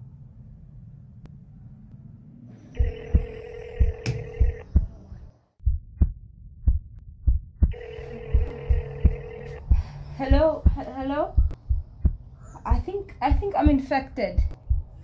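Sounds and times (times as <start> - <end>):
phone ringing tone beeps: 2.8 - 4.7, 7.7 - 9.7
heartbeat thudding: 2.8 - 5.0, 5.6 - 15.0.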